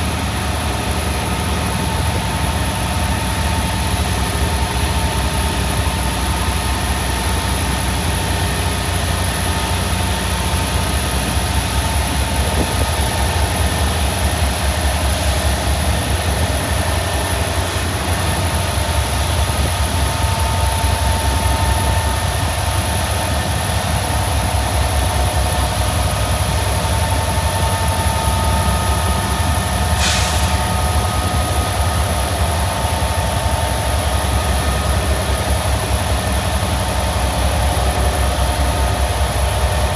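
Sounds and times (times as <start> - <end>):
freight train rumbling: 0.0 - 39.9
brief hiss: 30.0 - 30.7.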